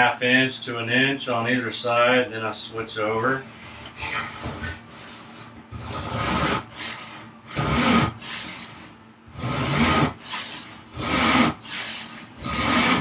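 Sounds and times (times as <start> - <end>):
hand saw cutting wood: 5.7 - 13.0.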